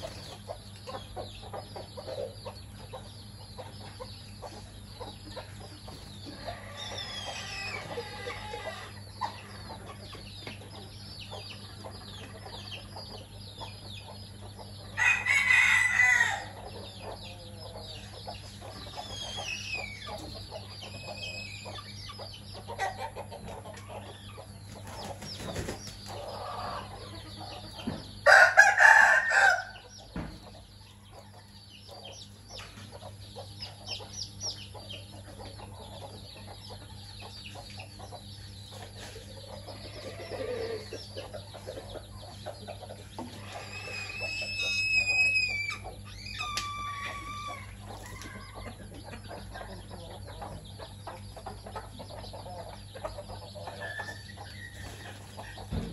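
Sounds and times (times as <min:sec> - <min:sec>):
chicks peeping: 0:00.0 - 0:55.9
hens clucking: 0:00.0 - 0:55.9
rooster crowing: 0:15.0 - 0:16.6, 0:28.2 - 0:29.8.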